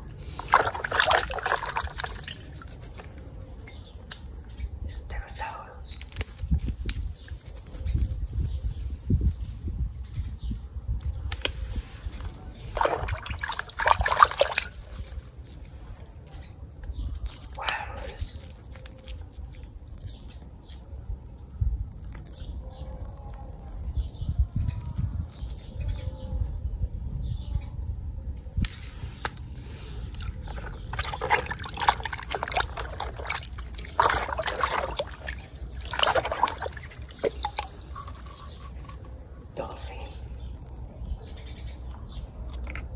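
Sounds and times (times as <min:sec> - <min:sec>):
hand splashing water in tub: 0:00.4 - 0:03.1, 0:12.7 - 0:15.0, 0:30.1 - 0:38.4.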